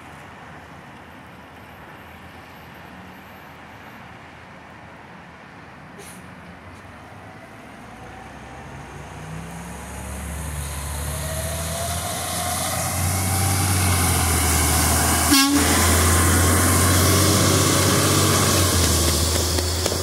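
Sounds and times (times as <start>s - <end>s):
tyres hissing on wet pavement: 8.9s - 20.0s
garbage truck engine humming: 9.2s - 20.0s.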